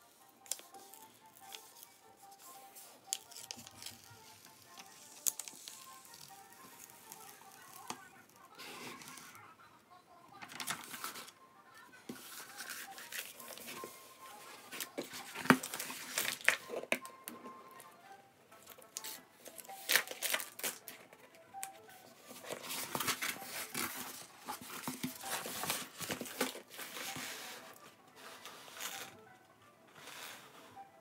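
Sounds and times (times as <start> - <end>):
paper sheet crinkling: 2.7 - 9.3, 10.5 - 11.3, 12.1 - 16.8, 18.9 - 21.0, 22.2 - 27.4.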